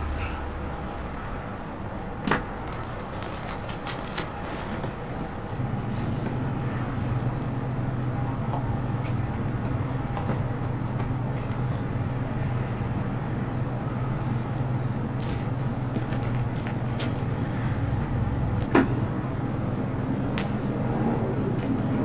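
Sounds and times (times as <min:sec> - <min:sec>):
low rumble and hum: 0:00.0 - 0:22.0
plastic film crackling: 0:02.7 - 0:05.6.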